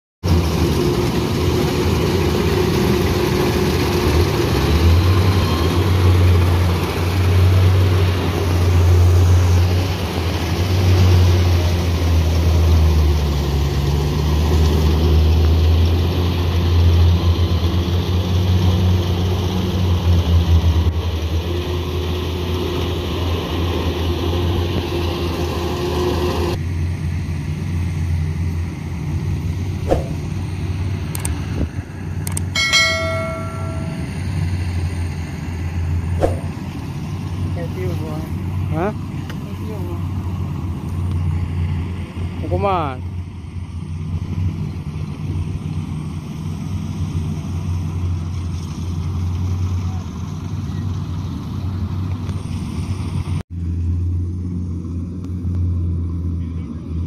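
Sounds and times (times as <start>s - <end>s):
diesel engine droning: 0.2s - 57.0s
machinery noise: 0.3s - 26.5s, 29.1s - 42.8s.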